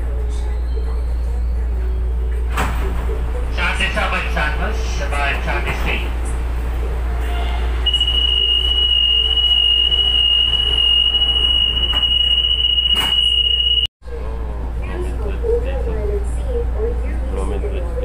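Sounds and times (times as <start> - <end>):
train low hum: 0.0 - 18.0
high warning beep: 7.9 - 13.9.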